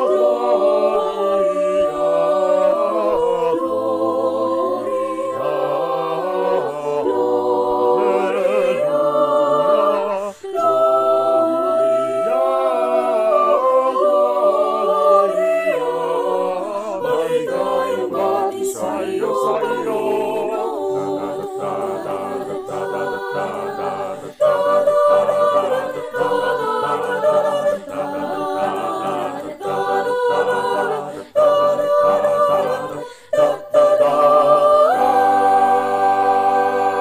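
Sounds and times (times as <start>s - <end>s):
mixed choir singing a cappella: 0.0s - 37.0s.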